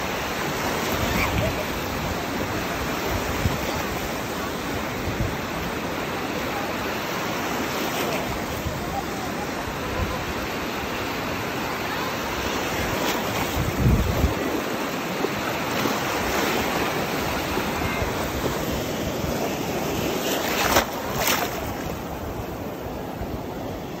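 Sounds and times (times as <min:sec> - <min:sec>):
small waves breaking: 0:00.0 - 0:24.0
wind buffeting microphone: 0:12.7 - 0:15.2.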